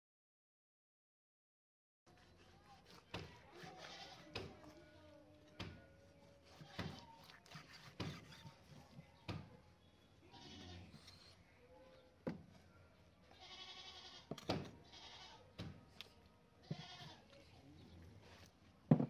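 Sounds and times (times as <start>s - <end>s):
livestock bleating: 3.7s - 4.3s, 10.2s - 11.2s, 13.3s - 15.5s, 16.6s - 17.2s.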